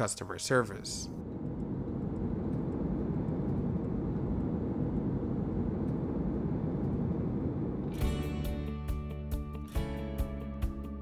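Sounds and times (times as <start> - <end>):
airplane cabin engine rumble: 0.0 - 8.5.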